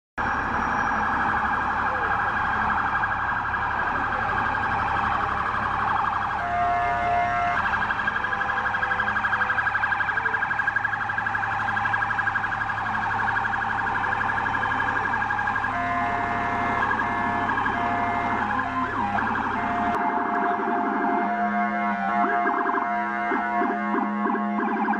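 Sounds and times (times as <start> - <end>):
emergency siren warbling: 0.2 - 24.9
horn blasts: 6.4 - 8.5, 15.7 - 24.9.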